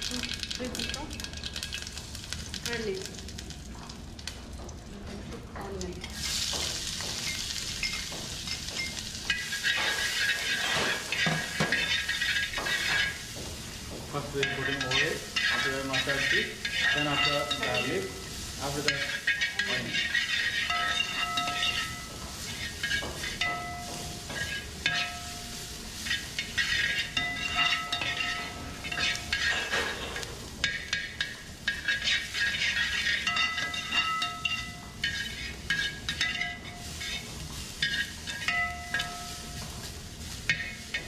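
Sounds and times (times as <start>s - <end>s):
onions sizzling: 0.0s - 41.0s
metal spoon scraping steel pan: 9.3s - 13.2s, 14.4s - 23.6s, 26.0s - 39.2s.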